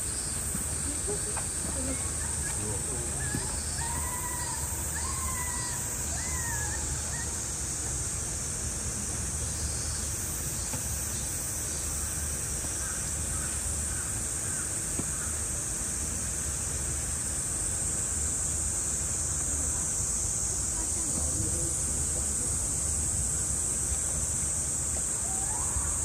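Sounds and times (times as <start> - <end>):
cicadas chorus: 0.0 - 26.0
faint wavering calls: 0.8 - 7.9, 25.1 - 26.0.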